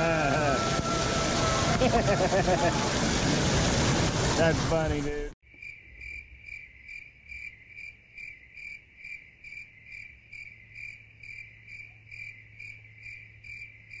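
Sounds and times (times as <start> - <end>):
insect chirping: 5.5 - 14.0.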